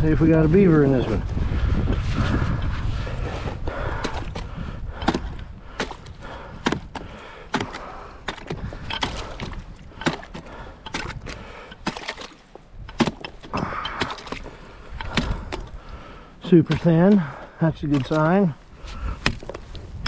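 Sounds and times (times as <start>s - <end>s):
ice bar chipping ice: 4.0s - 15.8s, 16.4s - 19.6s.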